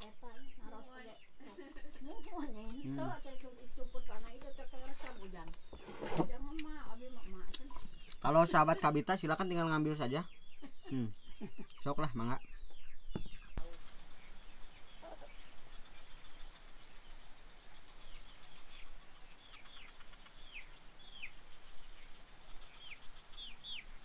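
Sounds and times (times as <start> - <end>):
faint high hiss: 13.6 - 24.0.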